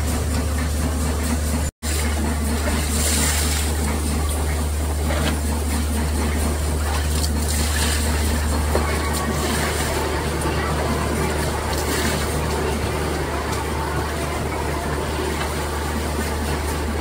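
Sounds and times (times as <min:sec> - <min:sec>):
factory machinery hum: 0:00.0 - 0:17.0
water splashing over screws: 0:01.8 - 0:04.1, 0:06.5 - 0:10.0.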